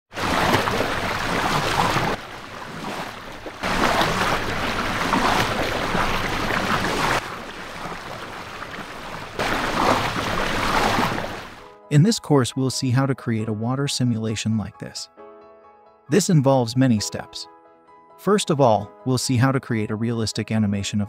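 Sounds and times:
water rushing and splashing: 0.1s - 11.7s.

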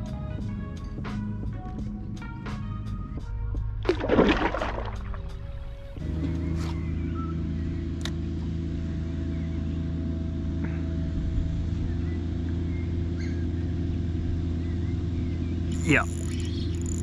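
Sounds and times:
low motor hum: 0.0s - 17.0s
faint bird chirps: 11.7s - 13.8s, 14.5s - 17.0s.

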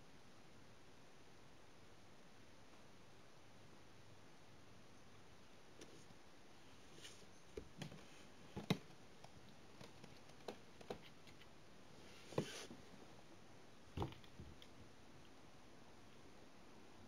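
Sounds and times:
kitten paws tapping on wood: 7.5s - 11.5s.

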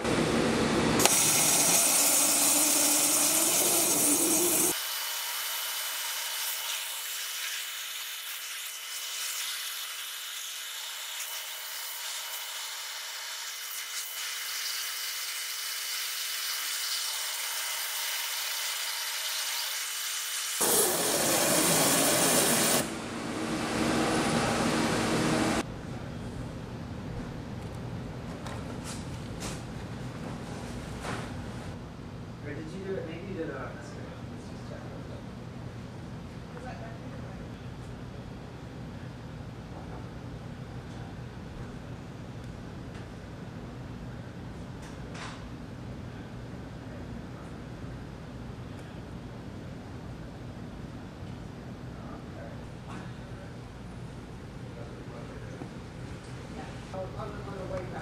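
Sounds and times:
waterjet hissing: 1.0s - 4.8s, 20.4s - 22.9s.

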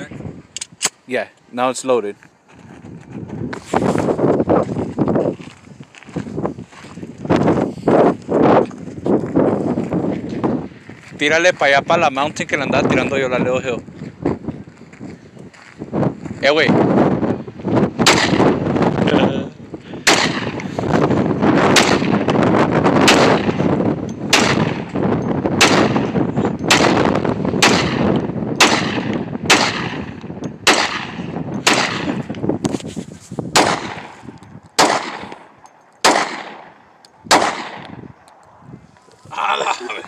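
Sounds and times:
gunshots with echo: 18.0s - 18.6s, 20.0s - 20.6s, 21.6s - 22.4s, 23.0s - 23.6s, 24.3s - 24.9s, 25.6s - 32.2s, 33.5s - 34.1s, 34.8s - 37.9s.

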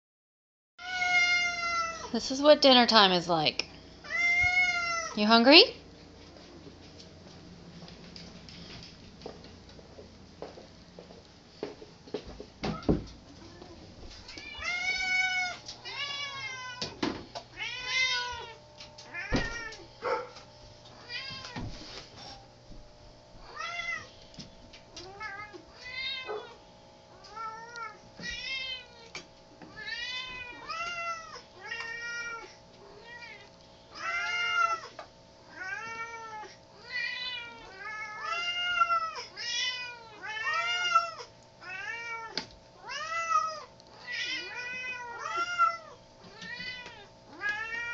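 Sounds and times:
cats meowing: 0.8s - 2.1s, 4.0s - 5.2s, 13.4s - 19.8s, 20.9s - 21.6s, 23.4s - 24.1s, 24.9s - 26.6s, 27.2s - 47.9s.

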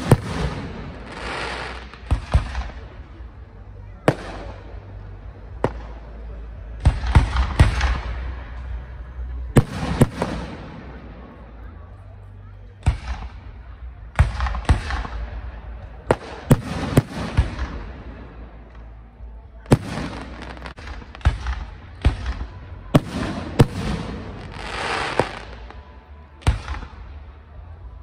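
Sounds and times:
firework bangs: 0.0s - 3.4s, 9.6s - 11.0s, 12.8s - 18.3s, 19.7s - 27.3s.

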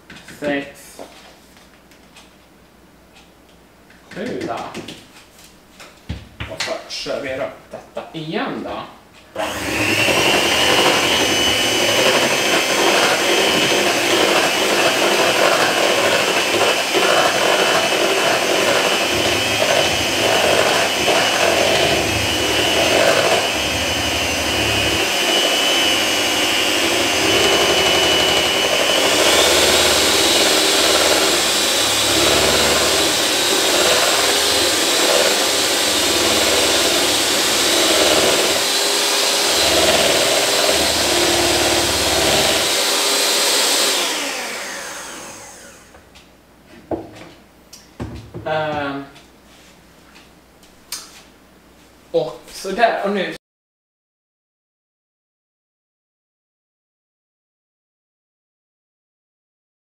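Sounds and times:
electric hand mixer whining: 9.4s - 46.1s.

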